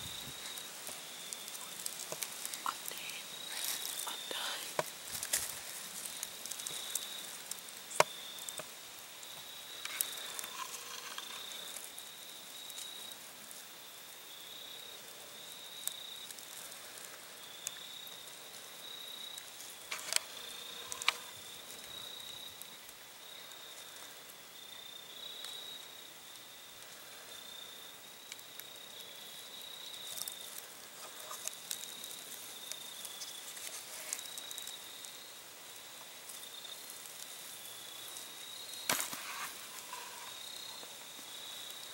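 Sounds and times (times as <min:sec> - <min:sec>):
crickets trilling: 0:00.0 - 0:41.9
soft clicks and rustles: 0:00.2 - 0:08.8.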